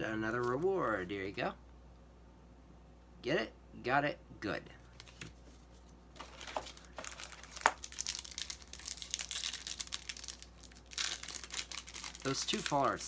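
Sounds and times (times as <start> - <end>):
foil wrapper crinkling: 6.2 - 13.0.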